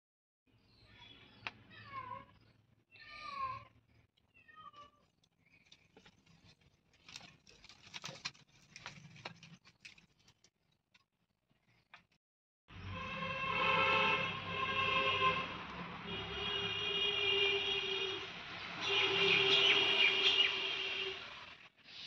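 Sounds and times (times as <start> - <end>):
kindling crackling in fire: 5.2 - 10.6.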